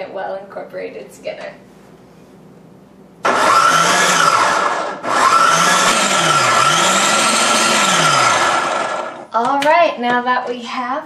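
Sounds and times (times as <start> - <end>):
food processor running: 3.2 - 9.3.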